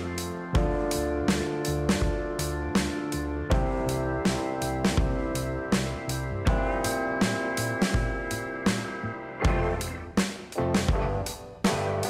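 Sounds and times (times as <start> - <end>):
held instrument chords: 0.0 - 12.0
drum beat: 4.9 - 5.4, 9.5 - 12.0.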